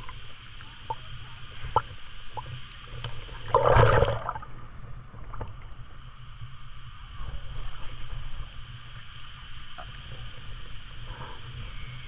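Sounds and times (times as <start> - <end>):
water sloshing and gurgling: 0.0 - 6.0
water splash: 3.4 - 4.5.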